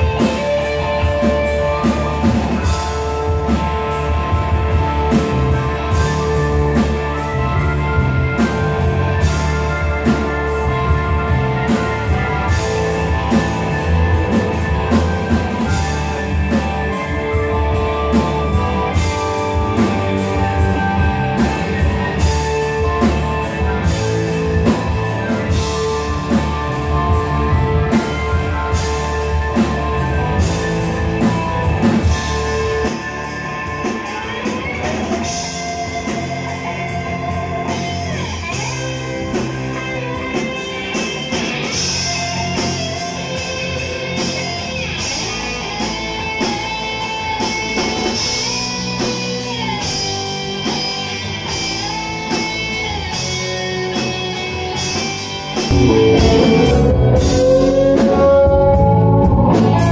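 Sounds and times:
rock band playing live: 0.0s - 59.9s
bent guitar note: 55.7s - 59.9s.

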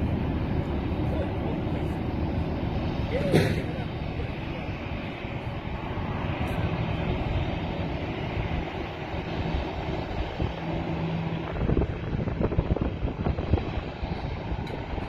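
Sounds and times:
jet engines running: 0.0s - 15.0s
wind buffeting microphone: 0.0s - 15.0s.

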